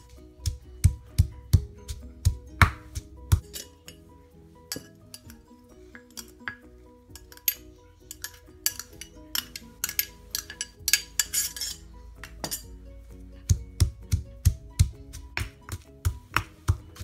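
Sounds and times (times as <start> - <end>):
stone pestle pounding in mortar: 0.4 - 3.5, 13.5 - 17.0
glass bowl clinking on mortar: 3.4 - 4.0, 4.7 - 5.4, 6.0 - 12.7.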